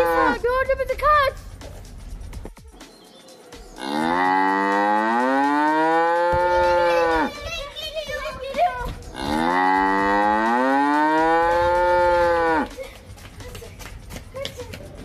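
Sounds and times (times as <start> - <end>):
cow mooing: 3.8 - 7.3, 9.1 - 12.7.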